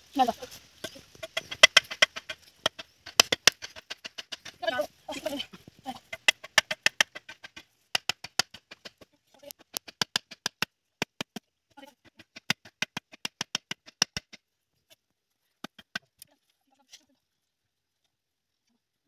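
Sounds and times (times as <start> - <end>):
machete striking bamboo stakes: 0.8 - 4.8, 6.1 - 11.5, 12.1 - 14.4.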